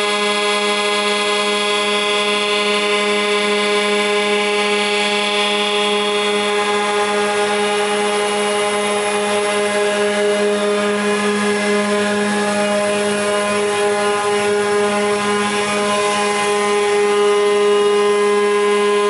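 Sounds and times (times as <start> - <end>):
planer machine droning with whine: 0.0 - 19.0.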